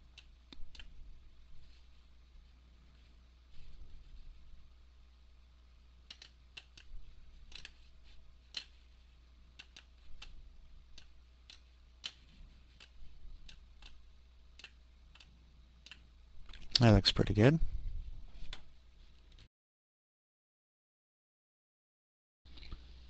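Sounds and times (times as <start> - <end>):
computer mouse clicking: 0.0 - 1.0, 6.0 - 7.9, 8.5 - 8.8, 9.5 - 16.9
faint low hum: 0.0 - 19.5.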